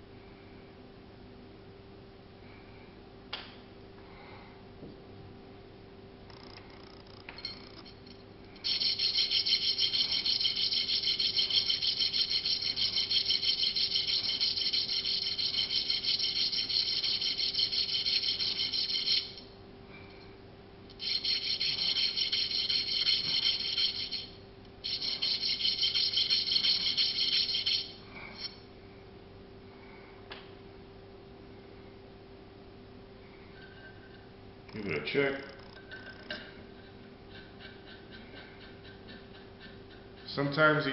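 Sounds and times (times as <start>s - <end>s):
metal rasping on hand file: 8.6s - 19.4s, 21.0s - 28.6s.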